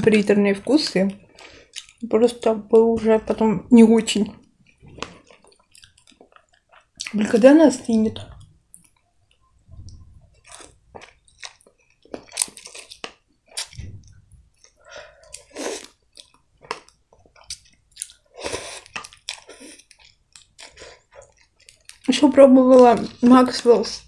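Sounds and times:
chewing with mouth clicks: 1.1s - 2.0s, 4.4s - 7.2s, 8.3s - 22.2s.

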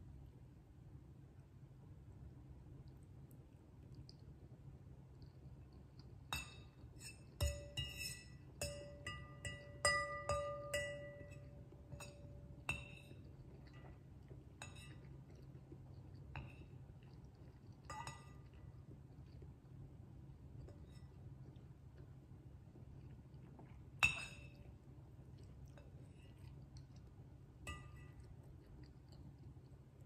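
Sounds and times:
cutlery clinking against ceramic bowl: 6.3s - 14.0s, 14.6s - 15.1s, 17.8s - 18.6s, 24.0s - 24.7s, 27.7s - 28.3s.

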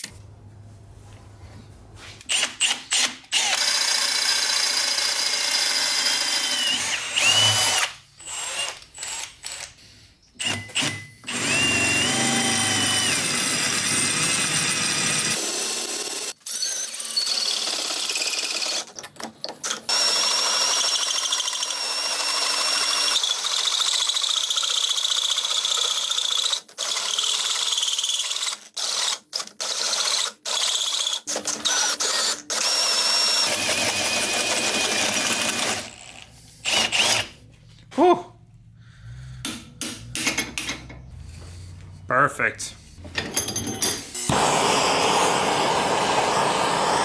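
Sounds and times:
drill grinding into metal: 2.3s - 9.7s, 10.4s - 18.9s, 19.8s - 24.9s, 26.1s - 37.4s, 44.2s - 47.0s.

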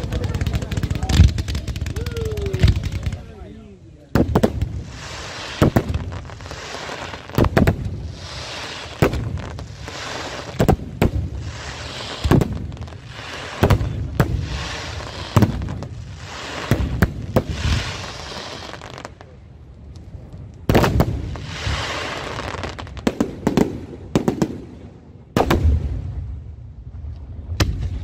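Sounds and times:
crackling hiss of fireworks: 0.0s - 28.0s.

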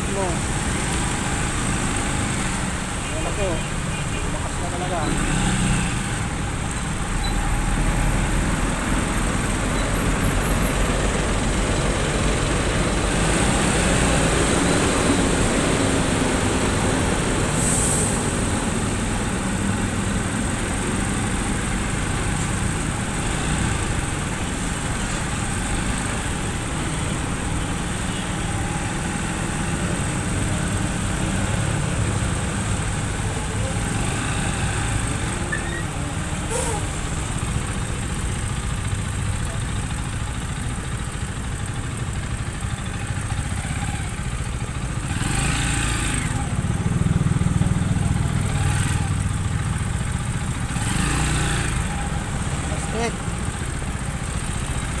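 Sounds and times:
traffic and road noise: 0.0s - 55.0s
motorcycle engine running: 18.4s - 55.0s.

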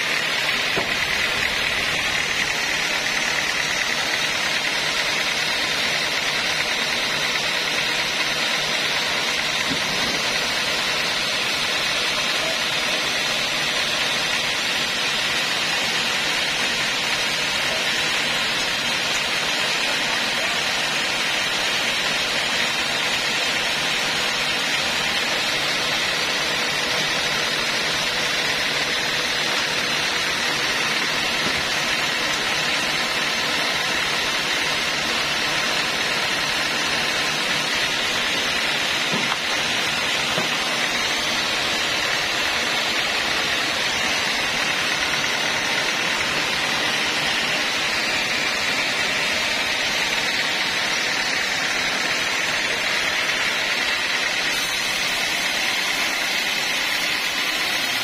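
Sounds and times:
band sawmill running: 0.0s - 58.0s.

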